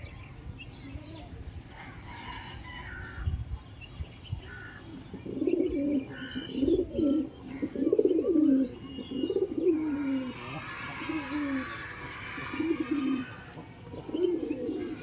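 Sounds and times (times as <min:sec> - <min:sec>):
pigeons cooing: 0:04.5 - 0:15.0.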